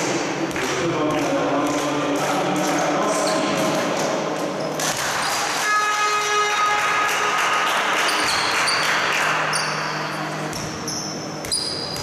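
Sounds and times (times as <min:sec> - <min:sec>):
horn-like tone: 0:05.6 - 0:07.4
sneakers squeaking on court: 0:08.1 - 0:12.0.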